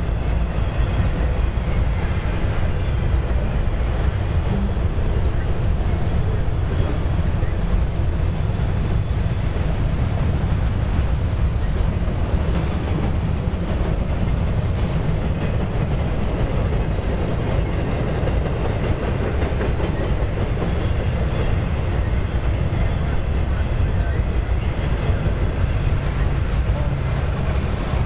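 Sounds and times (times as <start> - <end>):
freight train wheels rumbling on rail: 0.0 - 28.0.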